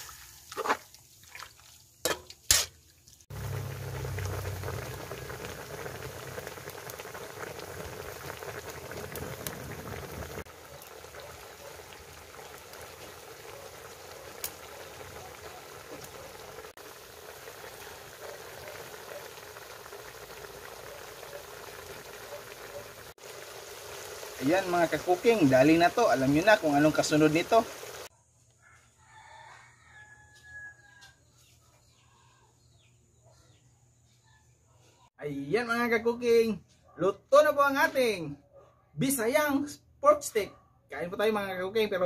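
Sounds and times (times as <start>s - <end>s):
liquid boiling in a wok: 0.0s - 28.1s.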